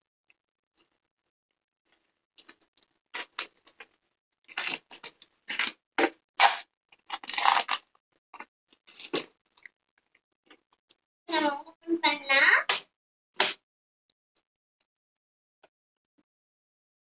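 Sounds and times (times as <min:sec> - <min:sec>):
plastic film crinkling: 0:04.5 - 0:05.7, 0:07.1 - 0:07.8.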